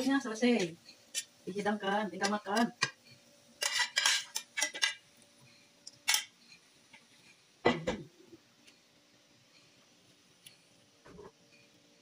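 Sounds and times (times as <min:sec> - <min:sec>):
spatula scraping a pan: 0:03.6 - 0:05.0.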